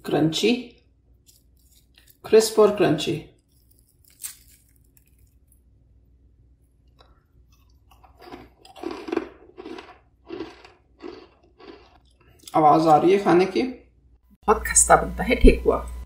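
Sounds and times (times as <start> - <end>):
biscuit crunching: 1.2 - 2.3, 3.3 - 5.7, 6.8 - 13.0.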